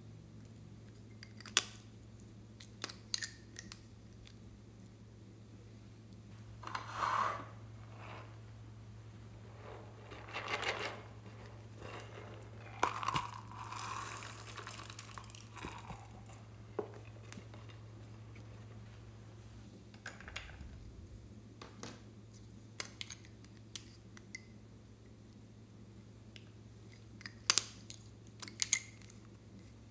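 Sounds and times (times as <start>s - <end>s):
low electrical hum: 0.0s - 29.9s
plastic toys crinkling and crunching: 12.4s - 16.4s.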